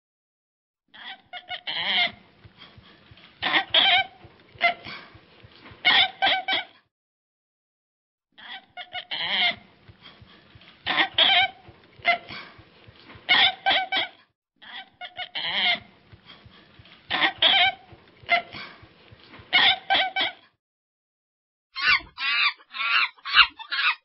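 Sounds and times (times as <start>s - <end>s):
orangutan calls: 21.8s - 24.0s.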